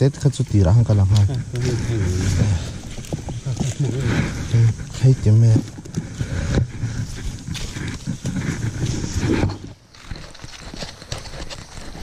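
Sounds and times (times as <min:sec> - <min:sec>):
rustling in dry leaf litter: 0:00.7 - 0:05.6.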